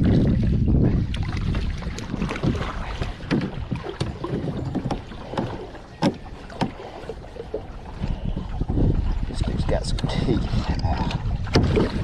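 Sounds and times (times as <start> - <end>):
water splashing against boat: 0.0 - 12.0.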